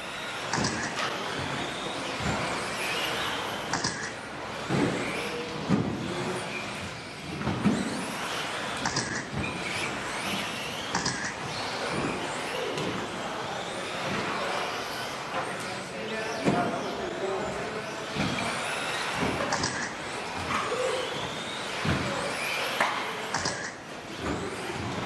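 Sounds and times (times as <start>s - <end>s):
electric motors whining: 0.0s - 25.0s
toy cars knocking and thumping: 0.1s - 15.7s, 16.4s - 25.0s.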